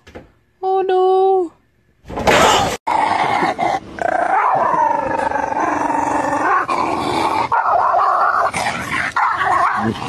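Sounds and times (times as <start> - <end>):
dog howling with growly edge: 2.9 - 10.0.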